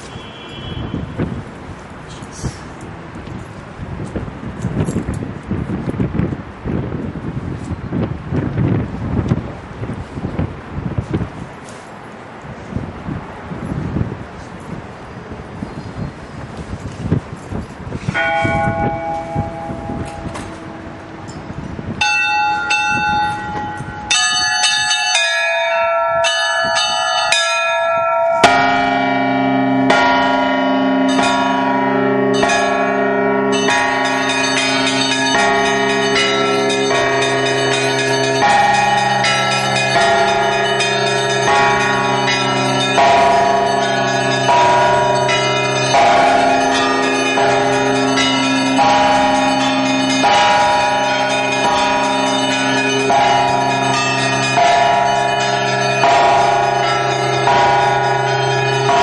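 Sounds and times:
deep church bells pealing: 0:18.0 - 0:59.0
small treble bells chiming: 0:18.2 - 0:59.0.

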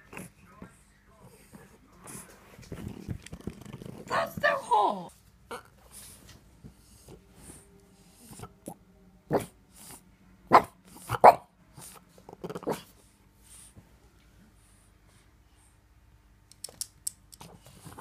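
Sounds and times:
dog barking: 0:10.5 - 0:11.5.

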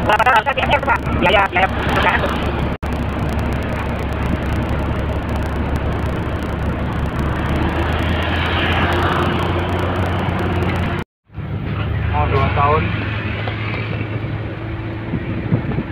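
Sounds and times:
low engine hum: 0:00.0 - 0:15.9
road and wind noise: 0:00.0 - 0:15.9.

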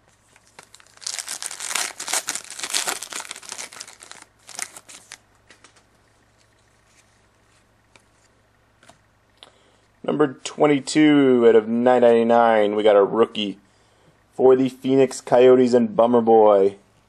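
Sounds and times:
wrapper crinkling and tearing: 0:00.3 - 0:05.7.

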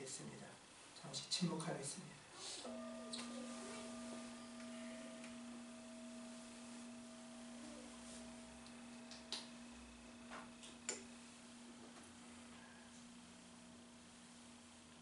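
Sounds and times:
singing bowl ringing: 0:02.6 - 0:15.0.

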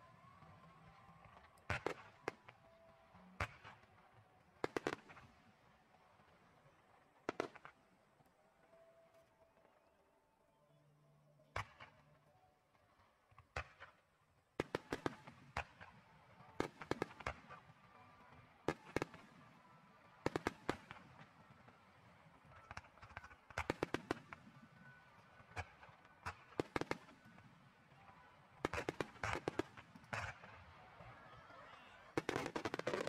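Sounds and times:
firework shells bursting: 0:32.2 - 0:33.0.

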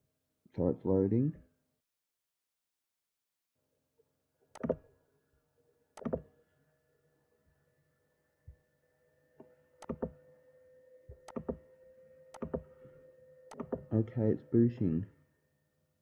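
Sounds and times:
computer mouse clicks: 0:04.6 - 0:04.8, 0:06.0 - 0:06.2, 0:09.8 - 0:10.2, 0:11.1 - 0:11.6, 0:12.3 - 0:12.7, 0:13.5 - 0:13.9.

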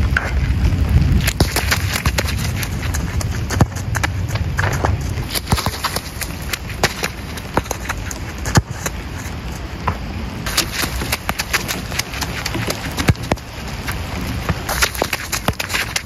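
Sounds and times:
low wind rumble on microphone: 0:00.0 - 0:16.0
running footsteps on wet turf: 0:00.0 - 0:16.0
football kicked hard: 0:01.2 - 0:09.0, 0:09.8 - 0:13.6, 0:14.4 - 0:16.0.

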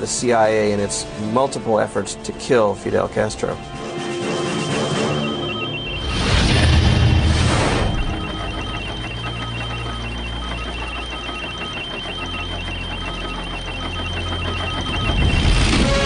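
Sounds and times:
steady high whine: 0:03.6 - 0:16.0
low drone: 0:03.8 - 0:16.0
rapid short beeps: 0:04.2 - 0:16.0.

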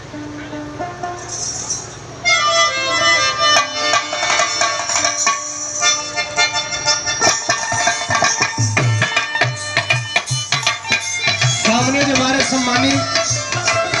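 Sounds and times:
tabla beating: 0:00.0 - 0:14.0
song over loudspeaker: 0:11.0 - 0:14.0.

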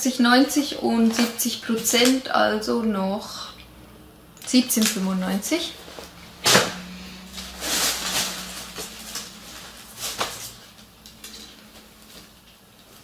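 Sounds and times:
fabric rustling: 0:05.8 - 0:13.0.

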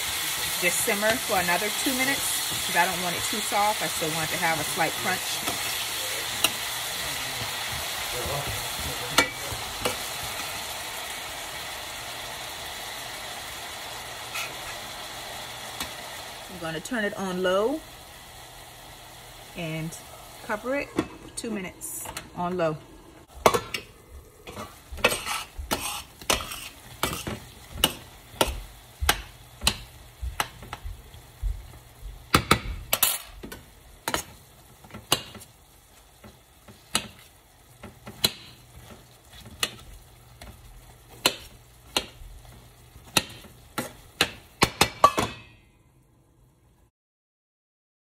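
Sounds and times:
faint sizzle of frying fruit: 0:00.0 - 0:46.9
metal utensil clinking on pan: 0:44.8 - 0:45.7.

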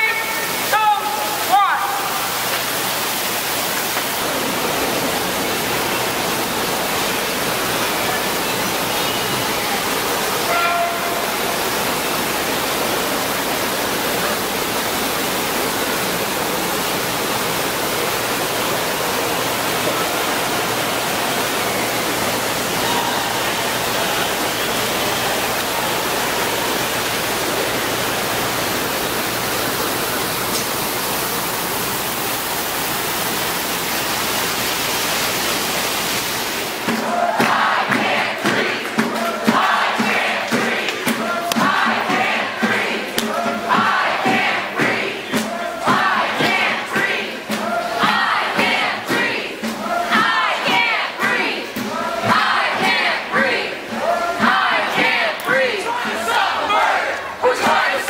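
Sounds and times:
steady hiss of mall atrium: 0:00.0 - 0:58.0.

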